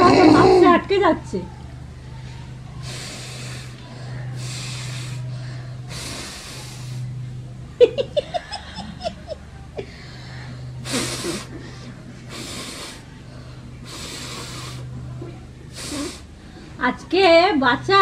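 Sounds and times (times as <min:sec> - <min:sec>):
puffs of breath through face mask: 0:02.8 - 0:07.2, 0:09.9 - 0:15.0, 0:15.7 - 0:16.8
woman laughing: 0:07.8 - 0:09.9.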